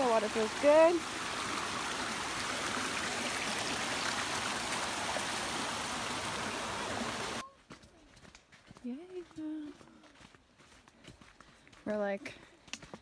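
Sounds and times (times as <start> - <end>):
creek running over rocks: 0.0 - 7.9.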